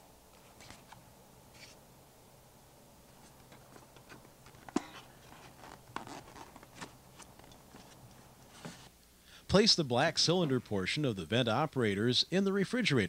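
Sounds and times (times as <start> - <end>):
cardboard rustling: 0.4 - 1.8, 3.1 - 8.9.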